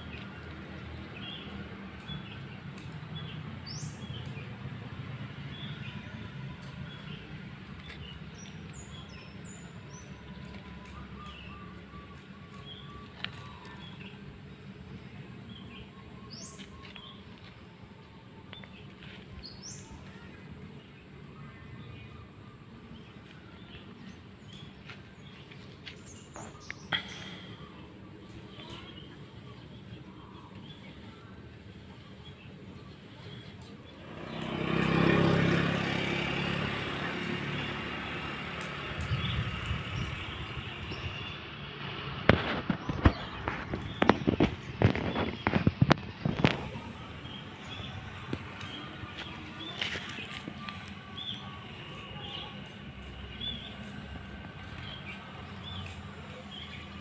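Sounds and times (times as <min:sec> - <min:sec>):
birds chirping: 0:00.0 - 0:57.0
passing vehicle engine: 0:32.8 - 0:57.0.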